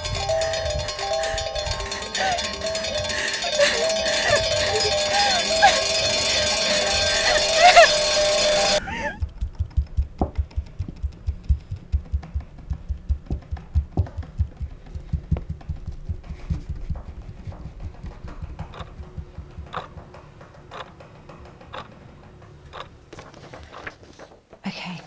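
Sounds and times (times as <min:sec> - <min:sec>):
wall clock ticking: 0:00.0 - 0:24.0
fingers drumming on wood: 0:00.0 - 0:24.7.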